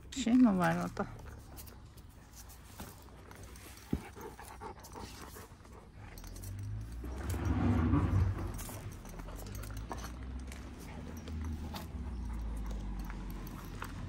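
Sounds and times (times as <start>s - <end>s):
dogs growling: 2.9s - 14.0s.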